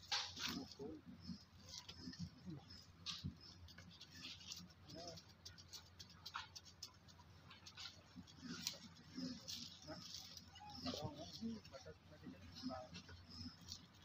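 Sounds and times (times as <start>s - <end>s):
faint clicks and scratches: 0.0s - 14.0s
soft monkey call: 8.4s - 13.7s.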